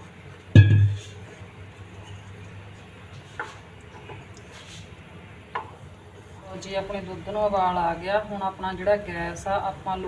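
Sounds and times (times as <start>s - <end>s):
loud thump: 0.6s - 1.1s.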